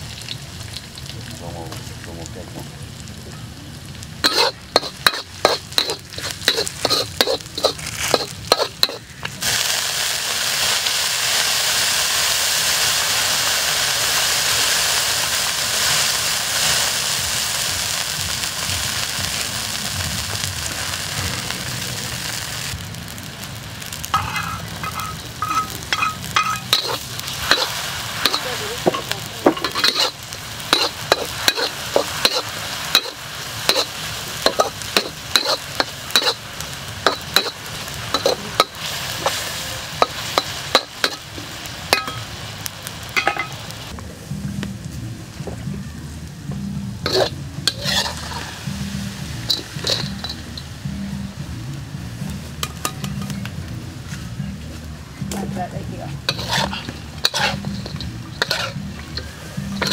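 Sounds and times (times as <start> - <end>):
food sizzling in hot oil: 0.0 - 59.9
metal spatula scraping wok: 4.2 - 9.2, 24.0 - 42.3, 47.0 - 50.8, 56.2 - 59.9.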